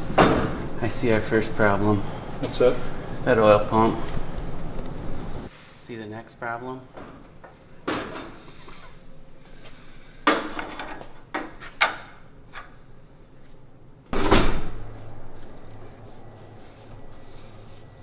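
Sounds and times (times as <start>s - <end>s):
hand tools and metal parts clanking: 10.3s - 12.8s.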